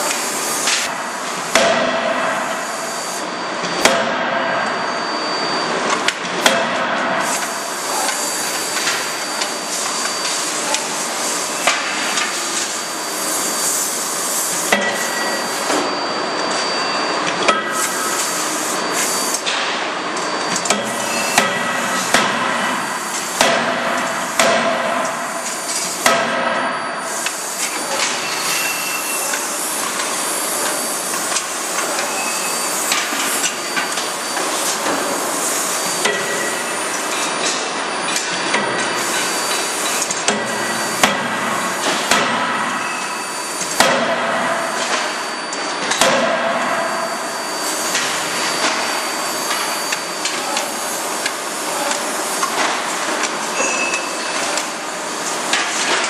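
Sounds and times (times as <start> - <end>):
forging hammer striking metal: 3.8 - 4.5, 20.6 - 22.8, 23.4 - 25.2, 45.9 - 46.6.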